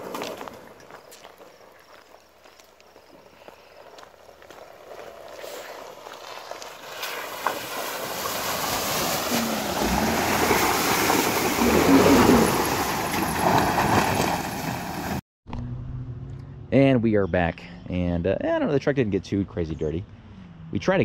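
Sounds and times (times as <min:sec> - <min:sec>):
tyres splashing through water: 0:05.8 - 0:15.2.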